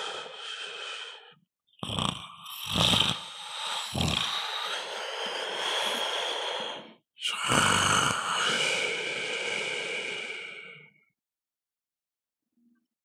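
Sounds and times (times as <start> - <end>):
person snoring: 0.0 - 11.0.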